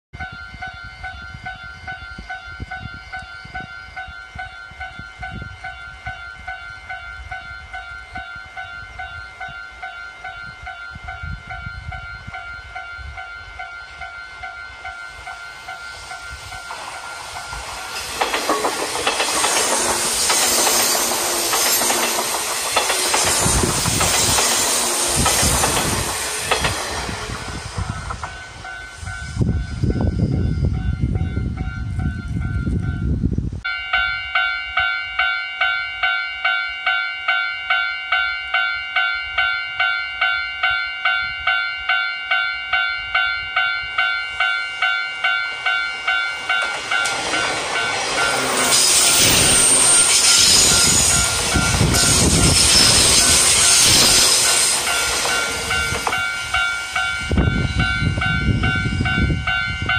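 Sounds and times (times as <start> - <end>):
train wheels rushing on rail: 9.0 - 33.3, 43.6 - 59.9
wheels clacking over rail joints: 16.5 - 28.4, 45.2 - 57.0.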